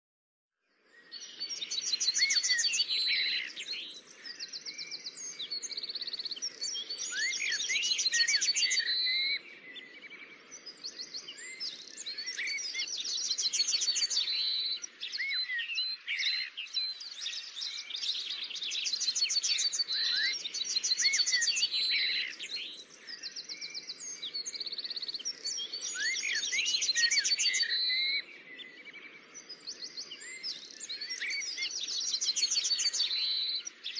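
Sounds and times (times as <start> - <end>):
birds chirping and whistling: 1.1 - 33.9.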